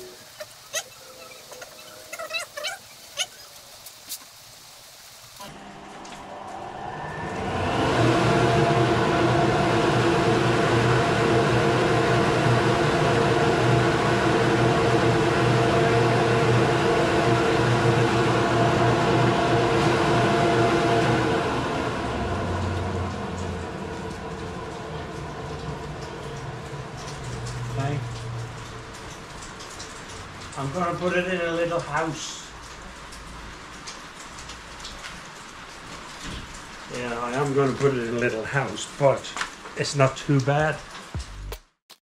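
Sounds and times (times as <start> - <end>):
dust collector rushing drone: 5.4 - 32.6.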